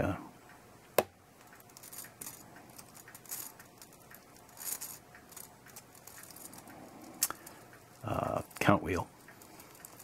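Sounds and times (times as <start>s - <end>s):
soft handling rustles: 1.5s - 10.0s.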